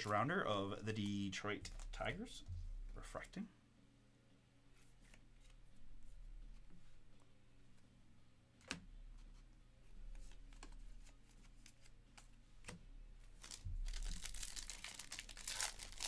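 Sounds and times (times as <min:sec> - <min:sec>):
trading cards clicking and rustling: 0:01.6 - 0:02.1.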